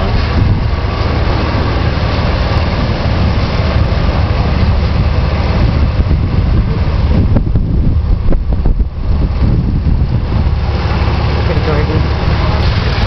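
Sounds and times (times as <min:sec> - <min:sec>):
vehicle driving rumble: 0:00.0 - 0:13.0.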